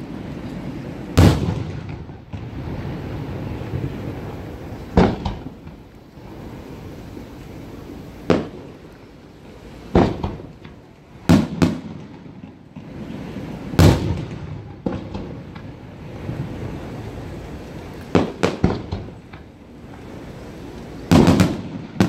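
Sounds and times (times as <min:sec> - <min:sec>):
firework shells bursting: 0:04.9 - 0:05.9, 0:09.9 - 0:15.8, 0:18.1 - 0:19.5, 0:21.0 - 0:22.0.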